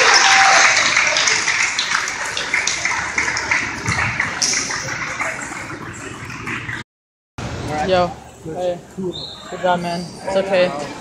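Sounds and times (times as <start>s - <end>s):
crowd cheering and clapping: 0.0s - 5.4s.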